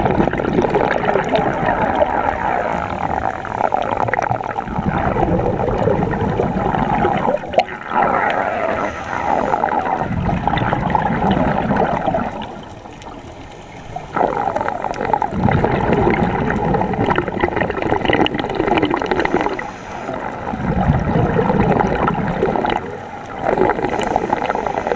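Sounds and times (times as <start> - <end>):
underwater regulator bubbles: 0.0 - 24.9.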